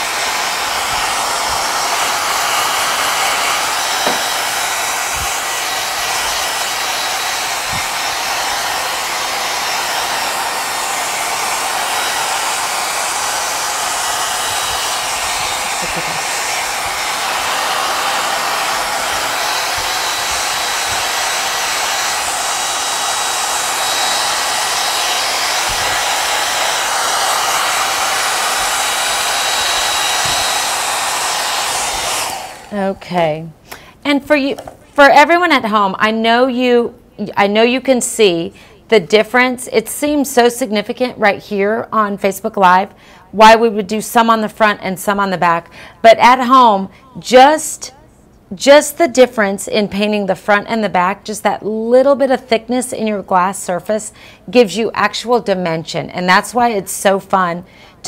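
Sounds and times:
blow dryer running: 0.0s - 34.8s, 38.2s - 48.0s.

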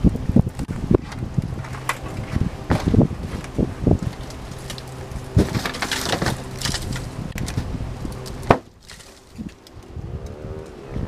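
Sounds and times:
dry twigs snapping underfoot: 0.5s - 10.8s
footsteps through long grass: 0.6s - 7.8s.

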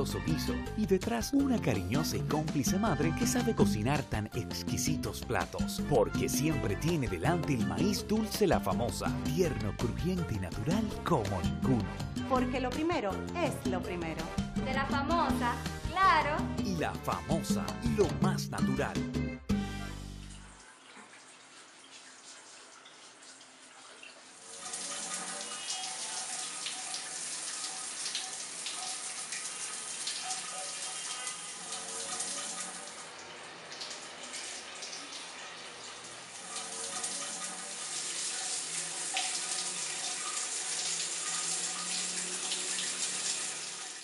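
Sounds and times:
shower water spraying and splashing: 20.3s - 44.0s.

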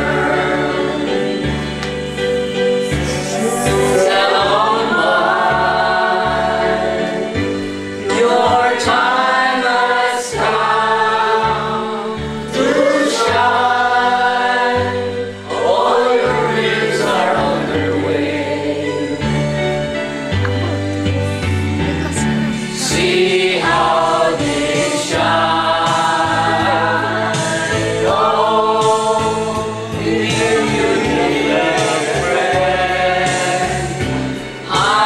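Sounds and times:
group of people singing: 0.0s - 20.3s, 21.2s - 35.0s
steady bass notes: 10.4s - 34.6s.

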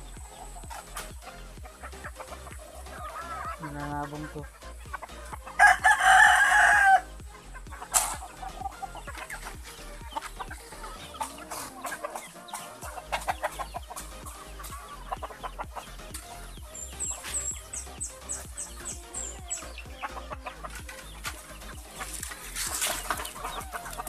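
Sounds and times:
chickens clucking: 0.0s - 24.0s
high quick chirps: 0.0s - 24.0s
rooster crowing: 5.5s - 7.2s.

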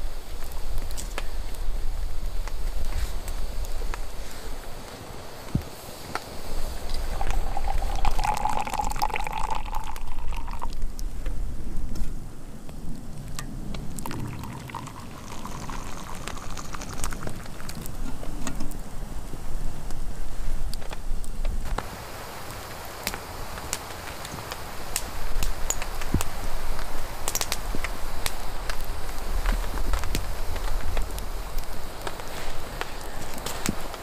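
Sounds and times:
water pouring into metal mug: 6.8s - 10.8s, 14.0s - 18.1s.

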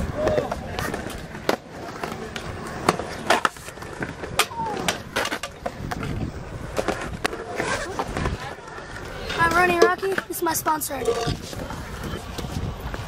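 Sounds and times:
scooter wheels rolling on concrete: 0.0s - 13.0s
scooter knocking and clattering: 9.2s - 11.6s.

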